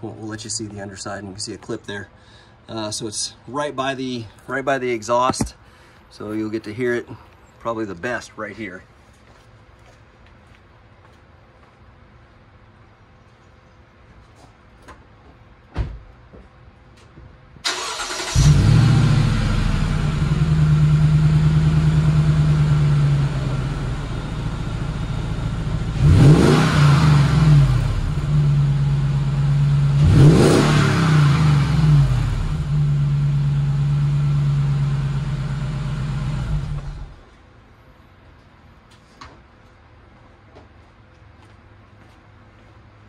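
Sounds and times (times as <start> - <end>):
car engine starting idling and revving: 17.7 - 37.2.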